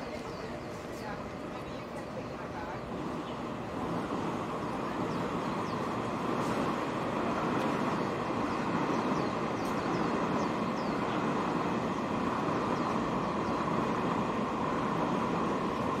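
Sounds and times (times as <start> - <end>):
moving vehicle running noise: 2.8 - 16.0.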